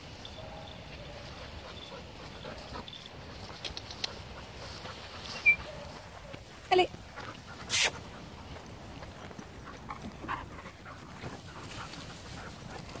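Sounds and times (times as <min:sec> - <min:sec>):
faint dog sounds: 0:00.2 - 0:08.3.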